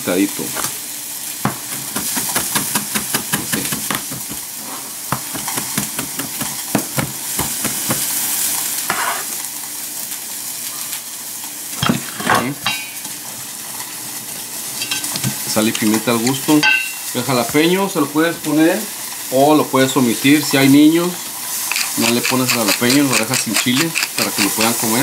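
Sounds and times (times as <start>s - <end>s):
food sizzling in a pan: 0.0s - 25.0s
knife chopping on plastic board: 5.1s - 8.0s.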